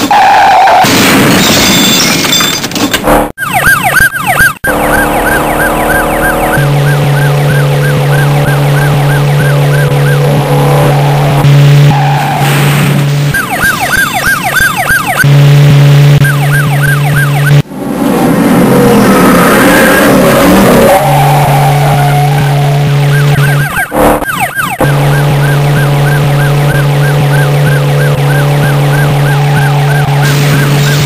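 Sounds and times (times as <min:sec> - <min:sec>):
police siren yelp: 0:03.4 - 0:12.4, 0:13.3 - 0:15.3, 0:16.1 - 0:17.6, 0:19.4 - 0:31.0.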